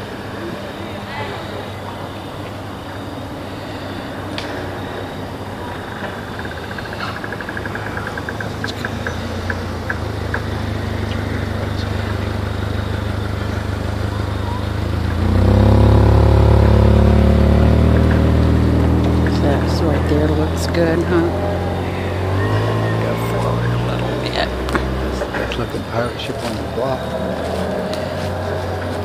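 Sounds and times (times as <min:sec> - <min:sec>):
low motor drone: 0:00.0 - 0:29.0
light ticks slowing down: 0:06.0 - 0:29.0.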